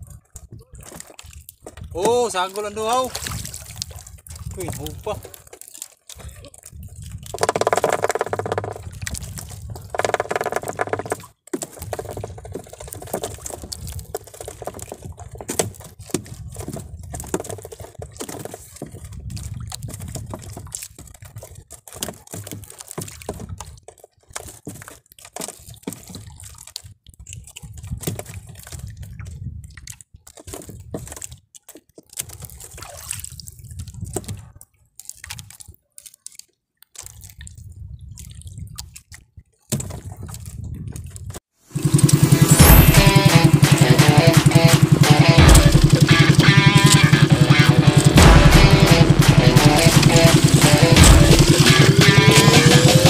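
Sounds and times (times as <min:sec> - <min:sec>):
small splashes: 0:00.0 - 0:40.6, 0:41.7 - 0:53.0
water sloshing and dripping: 0:00.0 - 0:53.0
loud pitched sounds: 0:41.7 - 0:53.0.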